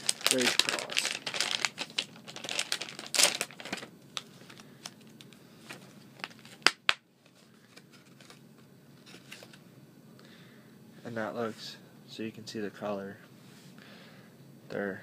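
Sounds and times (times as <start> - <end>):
plastic packaging crinkling: 0.0 - 8.4.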